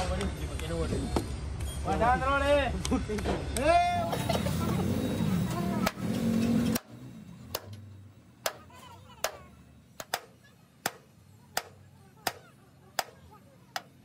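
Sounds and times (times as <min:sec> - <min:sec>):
hand hammer blows: 0:08.4 - 0:14.0.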